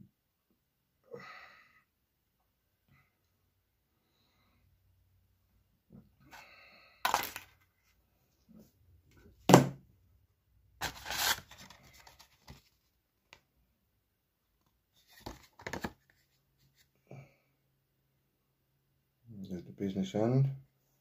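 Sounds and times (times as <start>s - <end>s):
paper rustling: 10.8s - 12.9s.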